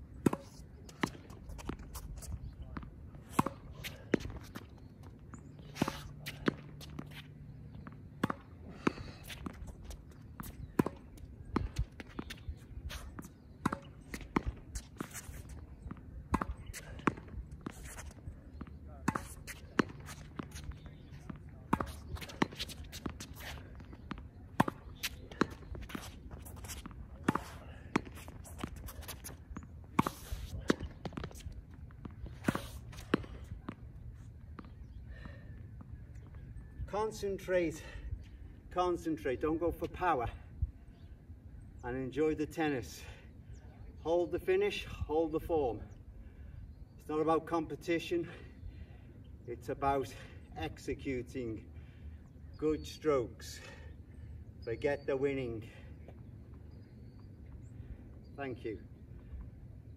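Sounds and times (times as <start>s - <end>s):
racket hitting tennis ball: 0.2s - 2.2s, 3.2s - 4.6s, 8.1s - 33.8s
footsteps and shoe scuffs: 14.1s - 15.7s, 16.6s - 18.3s, 19.1s - 29.4s, 30.0s - 34.8s.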